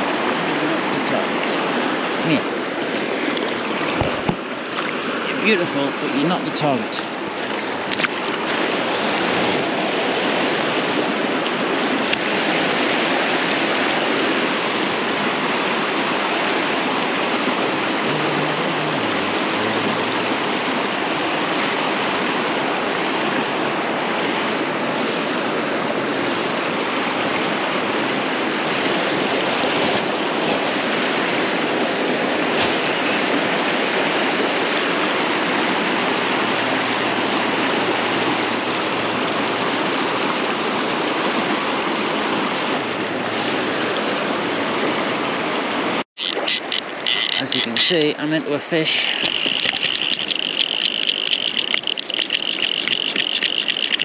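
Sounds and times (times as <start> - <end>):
fast-flowing river rushing: 0.0 - 54.0.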